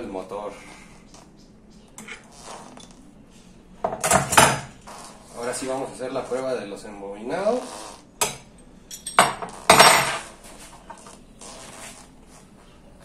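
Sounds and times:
metal tools clanking: 8.4 - 10.3.

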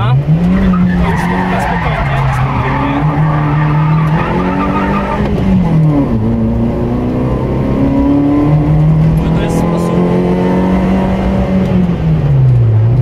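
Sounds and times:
rally car engine accelerating: 0.0 - 13.0
tyres squealing: 0.6 - 5.4.

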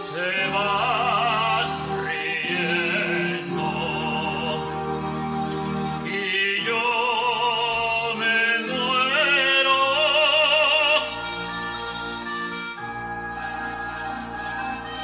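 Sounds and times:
operatic voice singing with vibrato: 0.0 - 4.8, 6.0 - 11.3
sustained instrumental backing: 0.0 - 15.0.

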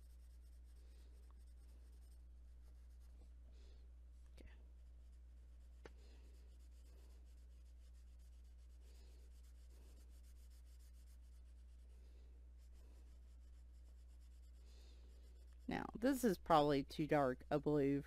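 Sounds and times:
crayon rubbing on paper: 0.0 - 3.2, 6.0 - 16.4
steady low hum: 0.0 - 18.0.

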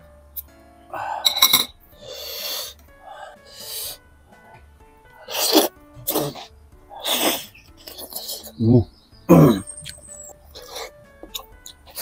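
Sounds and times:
quiet background music: 0.0 - 12.0
slurps and mouth noises: 5.2 - 8.6.

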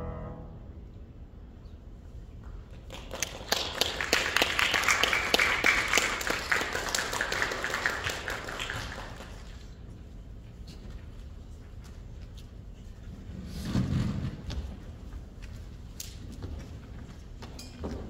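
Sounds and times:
audience applause: 2.8 - 9.8.

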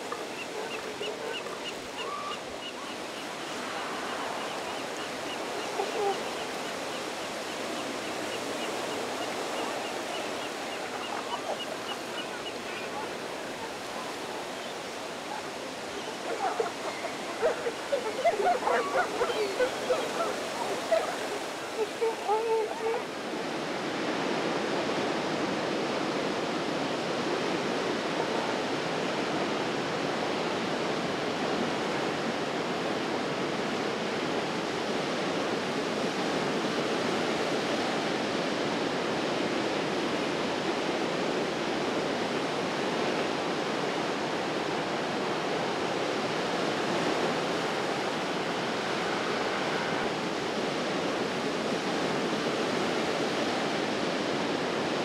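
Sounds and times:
ocean surf washing over rocks: 0.0 - 55.0.

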